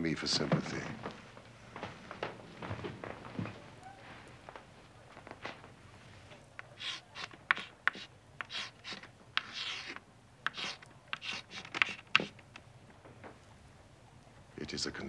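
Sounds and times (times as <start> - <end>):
chalk tapping on board: 6.7 - 12.4
chalk scratching on blackboard: 6.8 - 12.4.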